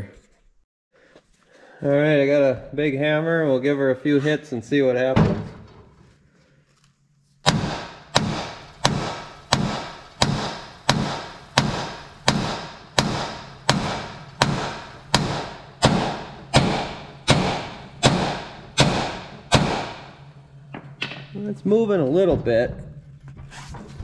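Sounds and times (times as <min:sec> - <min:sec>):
hammer striking metal spindle: 0:07.5 - 0:20.2.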